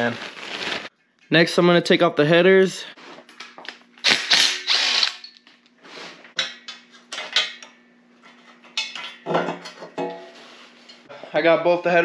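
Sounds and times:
metal tools clanking and scraping: 6.3s - 11.1s.

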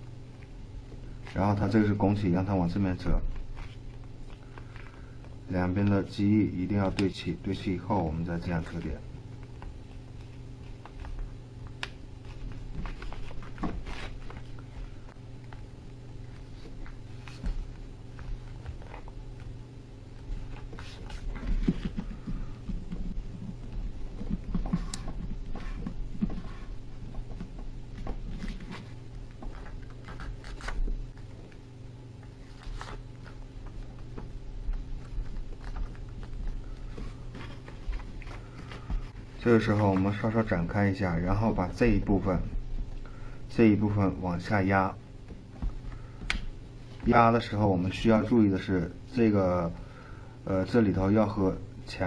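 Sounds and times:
steady low hum: 0.0s - 52.0s
paper crackling and creasing: 0.2s - 7.1s, 8.2s - 42.5s
paper crinkling rustle: 3.1s - 5.9s, 8.6s - 42.5s.

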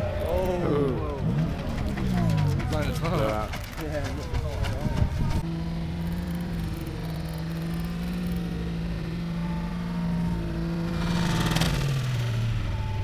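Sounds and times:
tyres spinning: 0.0s - 12.4s
car engine at high revs: 5.2s - 13.0s.

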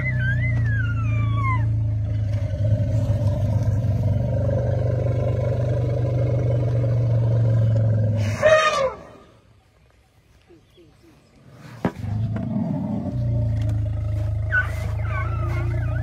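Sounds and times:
elephant call: 0.0s - 1.9s, 7.6s - 9.4s, 14.0s - 16.0s.

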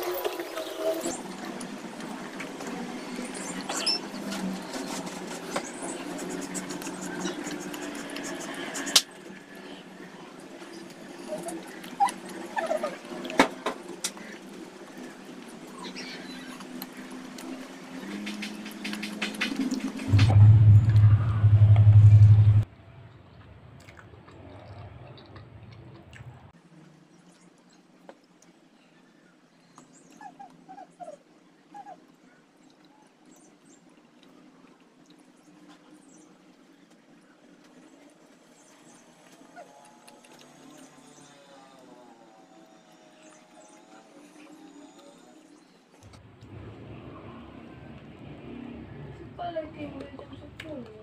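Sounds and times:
loud low rumble: 20.1s - 23.6s
chewing and mouth noises: 23.8s - 26.4s.

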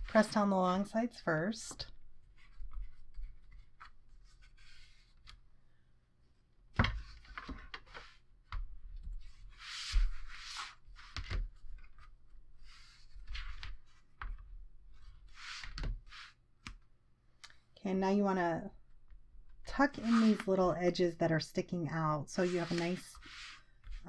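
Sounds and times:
paper scraping and rubbing: 19.9s - 20.6s, 22.4s - 24.0s.

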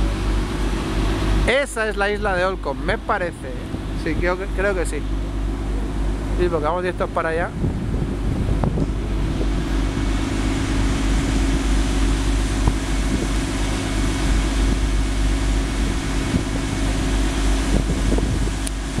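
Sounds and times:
boat engine droning: 0.0s - 19.0s
wind and water rushing: 0.0s - 19.0s.

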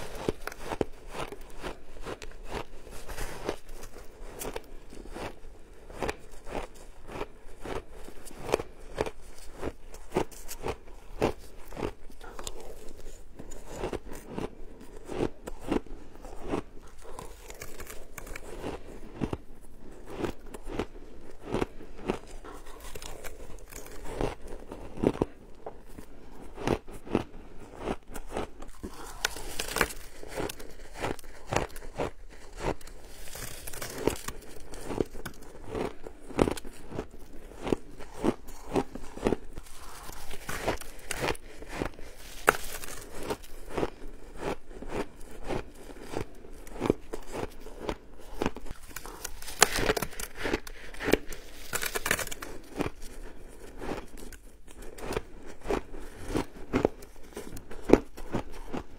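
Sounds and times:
shaved ice being chewed: 0.0s - 58.9s.

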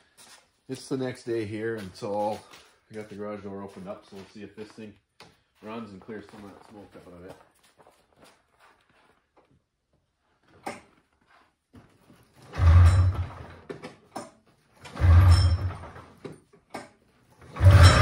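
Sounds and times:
engine turning over without catching: 12.4s - 13.8s, 14.8s - 16.2s, 17.4s - 18.0s
recoil starter pull: 12.4s - 18.0s.

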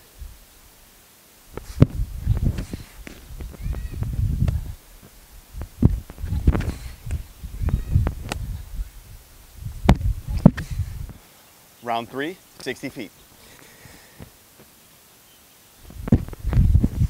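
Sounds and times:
low rumbling: 1.5s - 11.2s.

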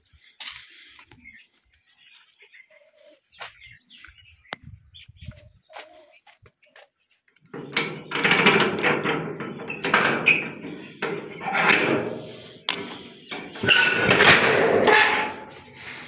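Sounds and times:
padlock and metal door rattling: 7.5s - 15.6s.

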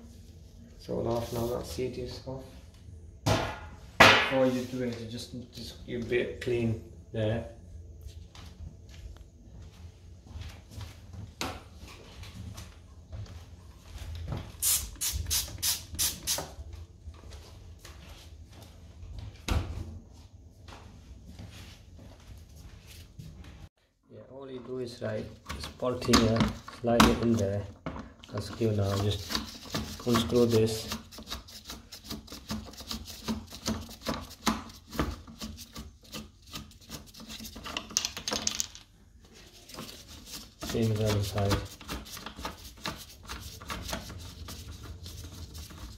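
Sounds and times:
spray bottle squirting: 14.6s - 16.5s.

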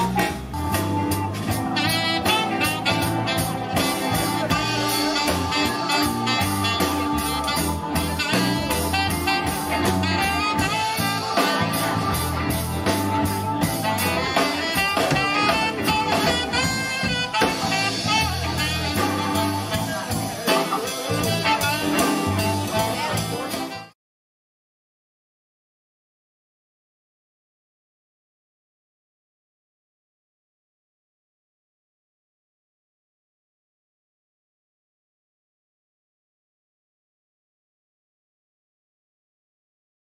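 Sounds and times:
live band playing: 0.0s - 24.0s
saxophone melody: 0.0s - 24.0s.

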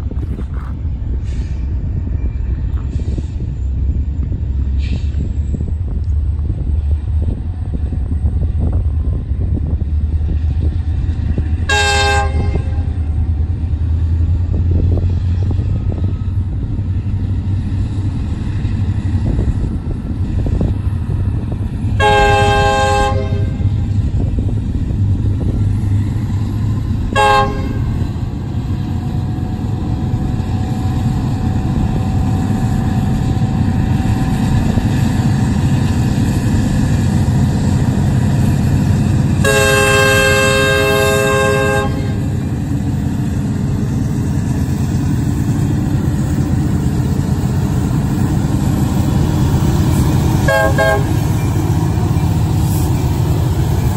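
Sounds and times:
diesel locomotive rumble: 0.0s - 53.9s
out of tune air horn blasts: 11.7s - 12.9s, 22.0s - 23.6s, 27.2s - 28.0s, 39.4s - 42.3s, 50.4s - 51.2s.

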